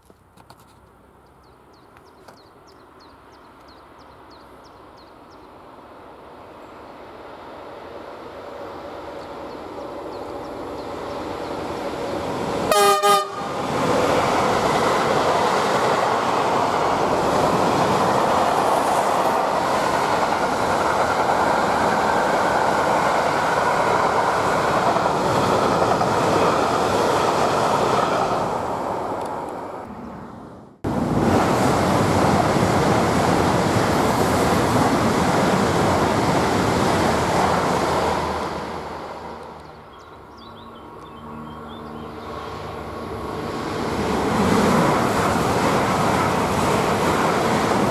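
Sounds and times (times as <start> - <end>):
high-speed train rushing rumble: 3.8 - 47.9
freight train rumbling and clattering: 8.5 - 29.6, 30.8 - 39.8, 42.3 - 47.9
locomotive horn blast: 12.7 - 13.6.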